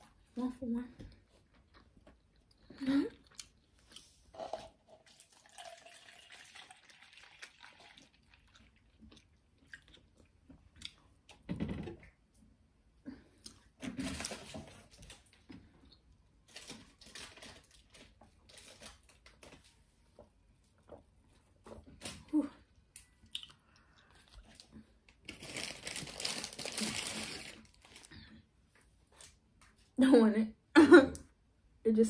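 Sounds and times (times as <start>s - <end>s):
crinkling and rustling: 13.7s - 22.4s, 24.2s - 29.9s.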